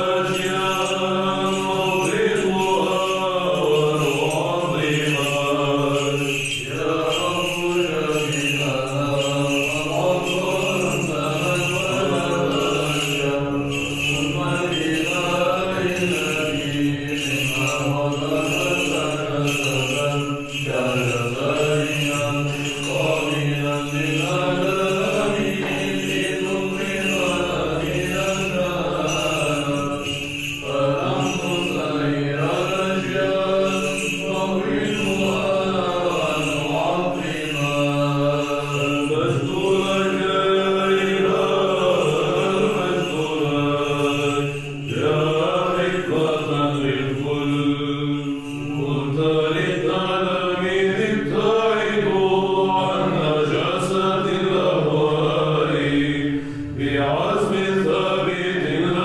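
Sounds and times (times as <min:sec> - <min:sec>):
held vocal drone: 0:00.0 - 0:59.0
voices chanting a melody: 0:00.0 - 0:59.0
singers breathing: 0:56.2 - 0:56.8.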